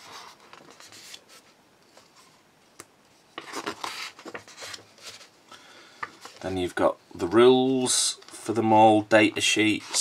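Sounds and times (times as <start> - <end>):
book pages turning: 3.3 - 5.4.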